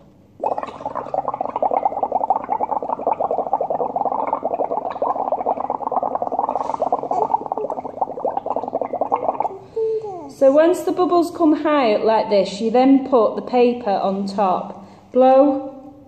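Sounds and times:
bubbling through a straw: 0.4 - 9.6.

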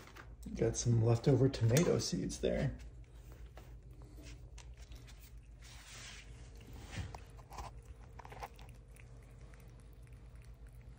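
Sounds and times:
prairie dog crunching nibbles: 2.8 - 10.9.

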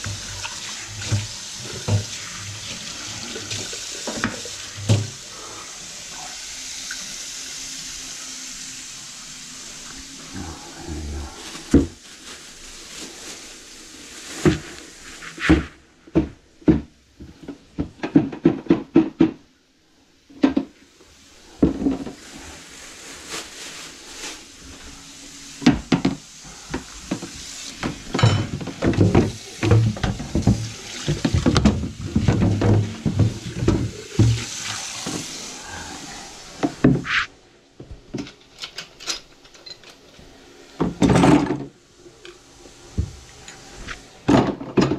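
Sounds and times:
plastic bucket knocking and scraping: 27.1 - 35.3.

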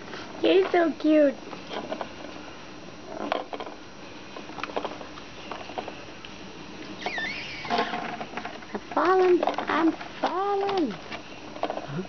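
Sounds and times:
high-pitched cry: 7.0 - 7.8.

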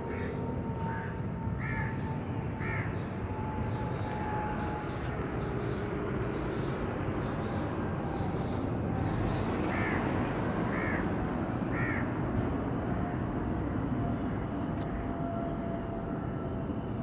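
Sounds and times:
crow cawing: 0.9 - 2.0, 2.6 - 3.0, 9.7 - 10.0, 10.7 - 11.0, 11.7 - 12.1.

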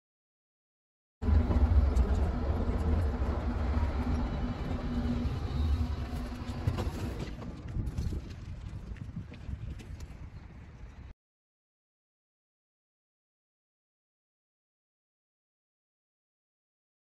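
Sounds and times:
tram rumbling: 1.2 - 9.0.

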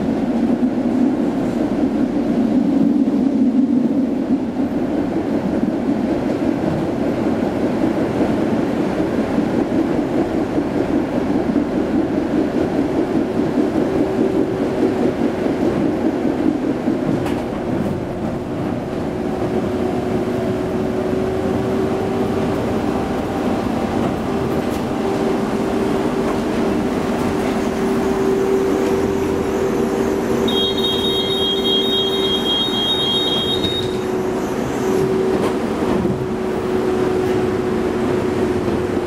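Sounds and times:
tram wheels rumbling on rails: 0.0 - 39.0.

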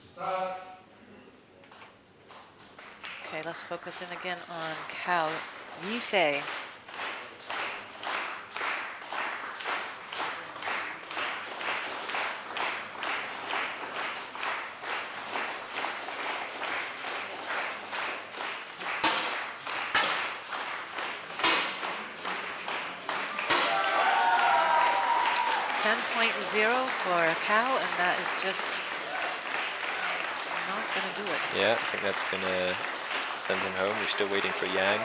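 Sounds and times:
crowd clapping in rhythm: 2.3 - 35.0
sharp loud cracks: 18.9 - 22.4, 23.2 - 24.0.

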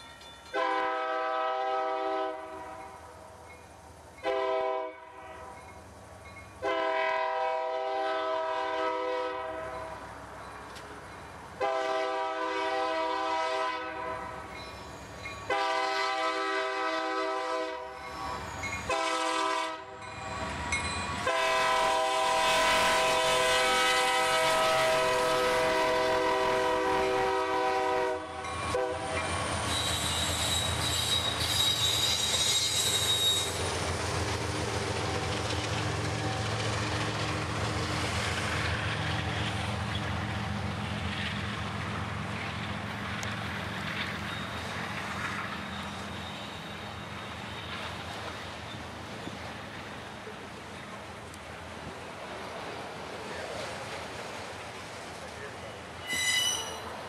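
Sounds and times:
train wheels on rails: 0.0 - 57.0
locomotive air horn blasts: 0.5 - 3.0, 4.2 - 5.5, 6.6 - 9.9, 11.6 - 14.5, 15.5 - 20.0, 21.2 - 30.9
high wheel squeal: 14.5 - 15.5, 18.0 - 19.0, 28.5 - 33.9, 44.1 - 49.4, 55.6 - 57.0.

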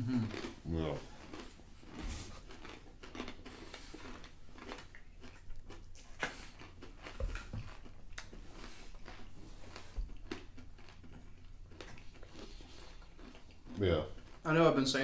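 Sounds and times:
people crunching dry snacks: 0.0 - 15.0.

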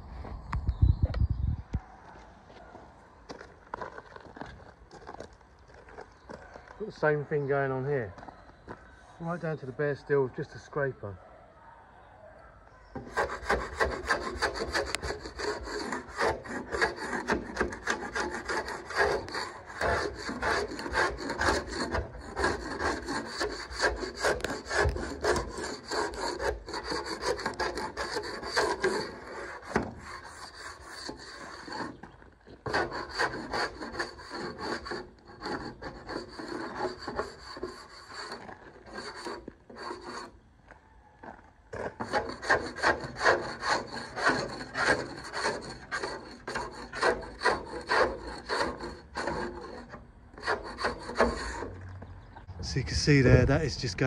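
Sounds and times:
scraper rasping on steel hull: 13.0 - 40.4, 41.8 - 52.9.

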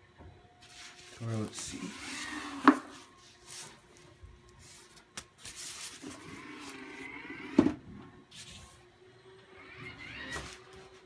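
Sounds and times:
foam wrap rustling: 0.6 - 7.0.

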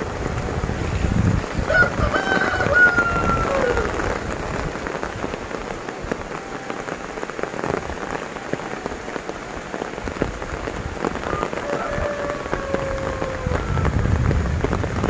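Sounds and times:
heavy rain on vegetation: 0.0 - 15.0.

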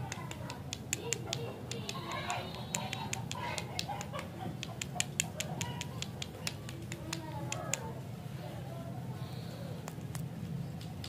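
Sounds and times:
sharp clicks and ticks: 0.0 - 7.9.

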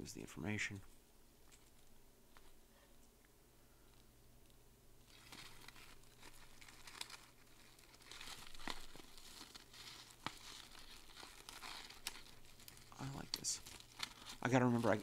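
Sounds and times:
plastic bag crinkling: 5.0 - 15.0.

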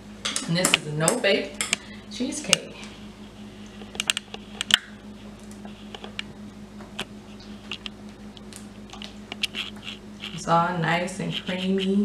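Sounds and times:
steady low hum: 0.0 - 12.0
spatula scraping glass bowl: 9.4 - 12.0.

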